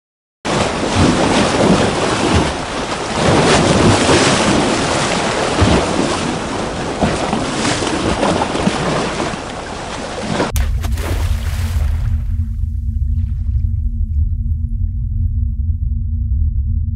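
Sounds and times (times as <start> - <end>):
ocean waves rushing: 0.5 - 12.4
low underwater drone: 9.3 - 16.9.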